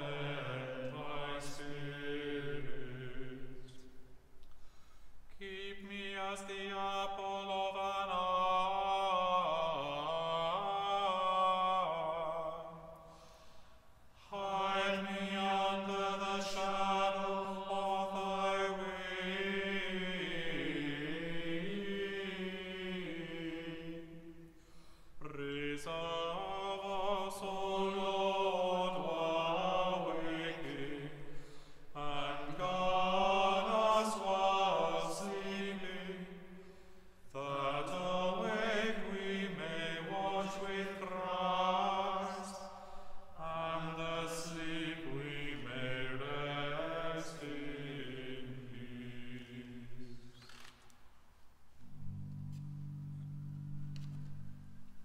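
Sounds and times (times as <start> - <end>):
choir singing a slow chant: 0.0 - 4.2, 5.3 - 50.7.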